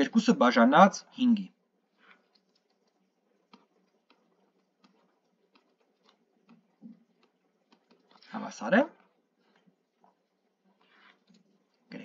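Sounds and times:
stylus tapping tablet screen: 0:02.0 - 0:08.3.

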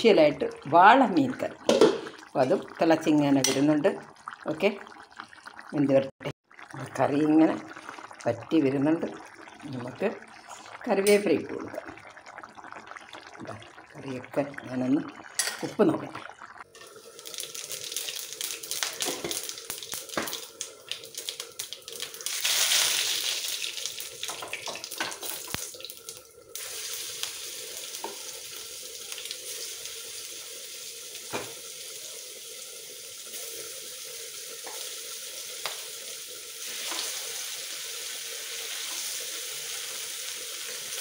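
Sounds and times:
pot simmering hiss: 0:00.0 - 0:41.0
water tap running: 0:16.7 - 0:41.0.

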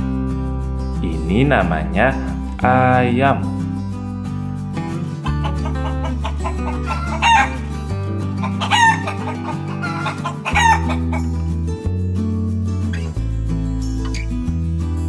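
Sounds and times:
guitar background music: 0:00.0 - 0:15.0
chickens calling: 0:05.0 - 0:11.4.

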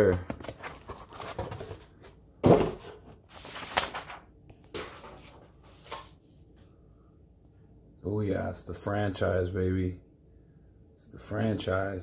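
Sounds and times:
paper rustling: 0:00.1 - 0:06.4.

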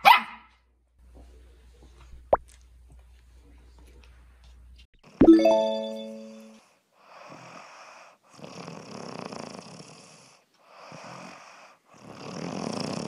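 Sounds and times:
dog snoring: 0:07.1 - 0:13.0.

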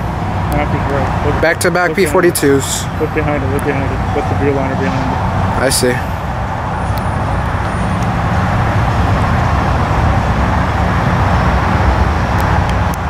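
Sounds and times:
diesel locomotive rumbling: 0:00.0 - 0:13.0.

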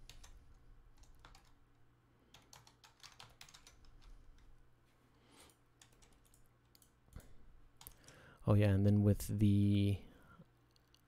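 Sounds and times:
faint keyboard typing: 0:00.0 - 0:04.6, 0:05.4 - 0:08.3.

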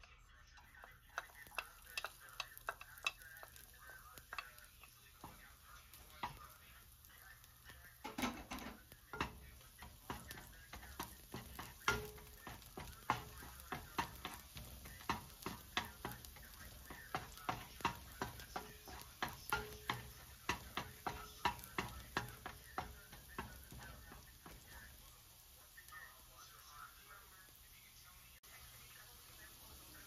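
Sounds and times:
wooden spatula scraping wok: 0:00.0 - 0:06.6, 0:07.7 - 0:25.1
garlic sizzling in oil: 0:00.0 - 0:30.0.

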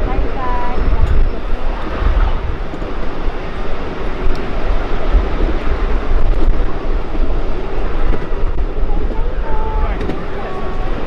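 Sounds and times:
miniature train rumbling on track: 0:00.0 - 0:11.0.

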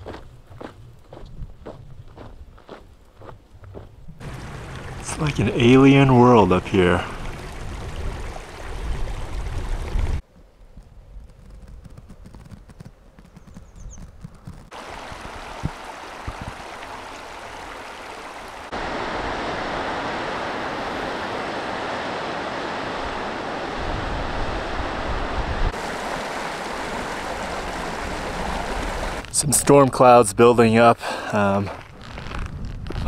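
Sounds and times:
wind buffeting microphone: 0:00.0 - 0:02.8, 0:03.5 - 0:16.8, 0:18.7 - 0:29.2
water rushing over boulders: 0:04.2 - 0:10.2, 0:14.7 - 0:29.4.

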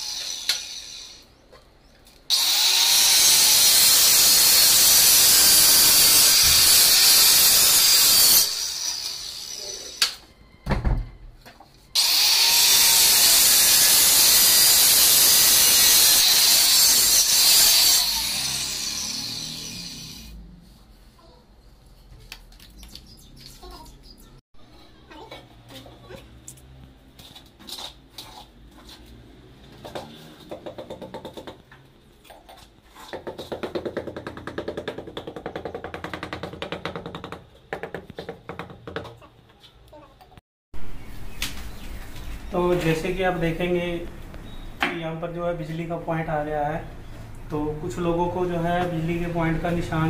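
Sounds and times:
electric tile cutter grinding: 0:00.0 - 0:01.2, 0:02.3 - 0:10.2, 0:12.0 - 0:20.4.

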